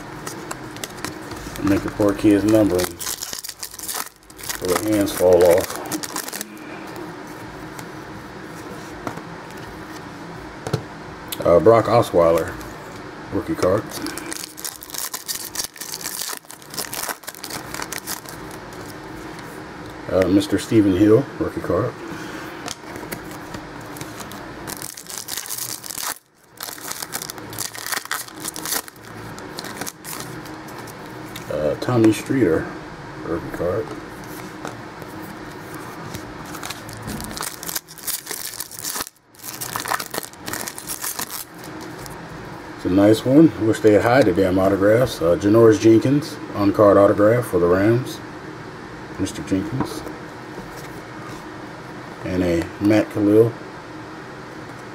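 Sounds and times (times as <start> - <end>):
foil wrapper crinkling and tearing: 0.7 - 6.6, 13.5 - 19.0, 24.0 - 31.5, 36.4 - 42.2.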